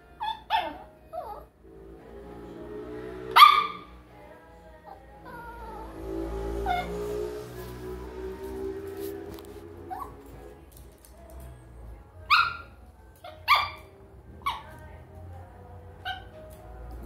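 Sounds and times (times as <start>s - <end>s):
small dog yelping: 0.2s - 1.5s, 3.4s - 3.9s, 6.6s - 7.1s, 9.9s - 10.3s, 12.3s - 14.8s, 16.0s - 16.4s
small dog barking: 3.3s - 3.9s, 12.3s - 14.8s.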